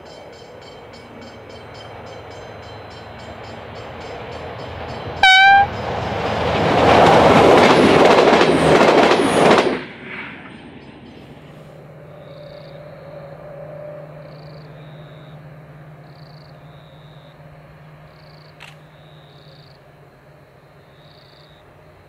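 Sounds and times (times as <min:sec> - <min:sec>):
distant diesel locomotive drone: 0:00.0 - 0:22.0
faint high two-note chirp: 0:05.2 - 0:05.7.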